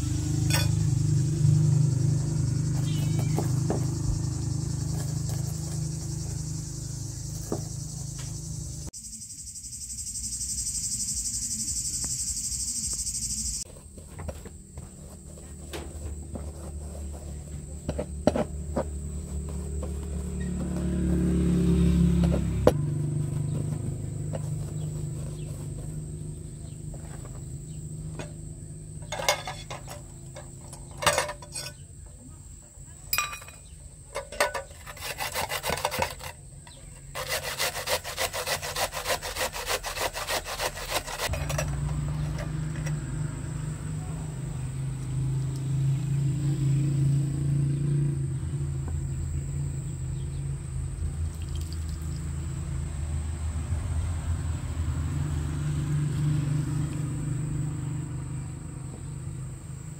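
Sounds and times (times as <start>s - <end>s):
scraping on wooden board: 13.7s - 21.2s, 22.0s - 27.5s, 29.0s - 31.8s, 34.2s - 43.0s
onion grated on metal grater: 34.2s - 42.4s.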